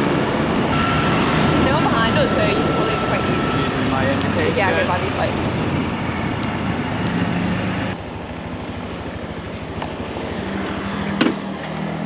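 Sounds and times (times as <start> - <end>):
wind noise: 0.0 - 8.4
moped engine running: 0.0 - 12.0.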